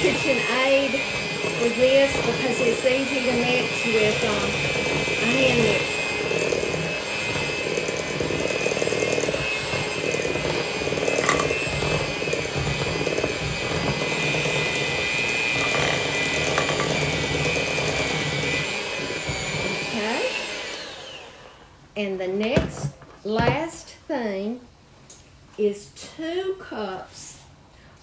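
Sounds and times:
electric hand mixer whirring: 0.0 - 21.7.

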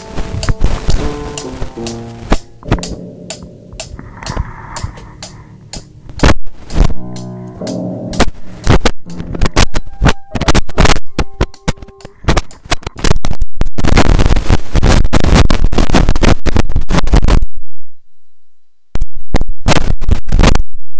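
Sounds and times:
microphone handling noise: 0.0 - 3.1, 3.8 - 17.4
microphone scraping piano keys: 0.0 - 13.2
short piano notes: 6.9 - 12.7.

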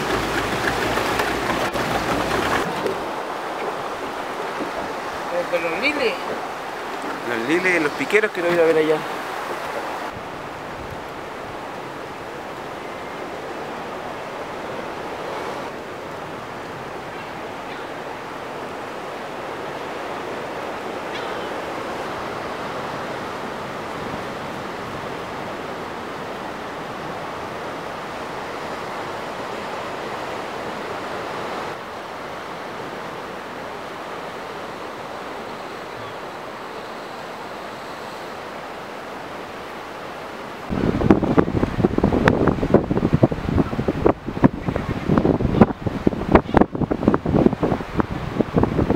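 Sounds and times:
waves washing against rocks: 0.0 - 16.9
wind on microphone: 40.6 - 48.9.

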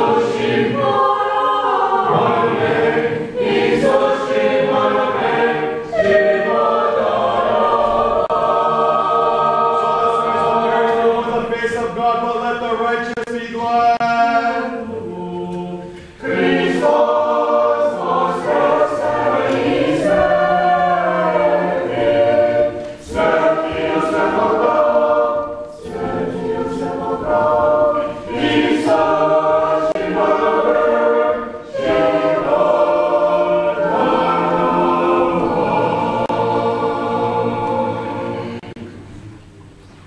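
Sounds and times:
church choir singing a cappella: 0.0 - 39.1.

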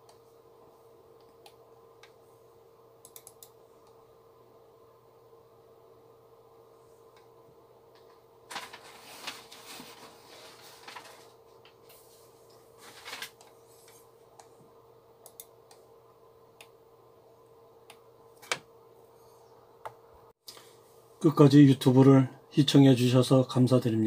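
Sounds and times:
faint steady hum: 0.0 - 24.0
computer mouse clicks: 3.0 - 4.0, 15.2 - 15.8
rustling handling noise: 8.0 - 14.2.

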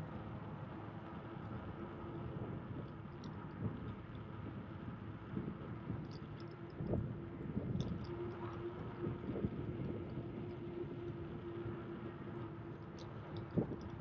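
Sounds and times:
wind on microphone: 8.7 - 11.4.

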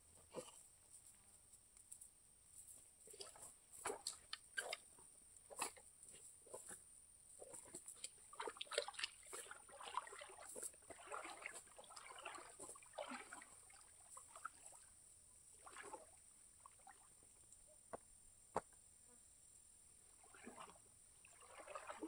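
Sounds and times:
water splashing and dripping: 3.2 - 4.9, 7.4 - 14.8, 20.2 - 22.0.

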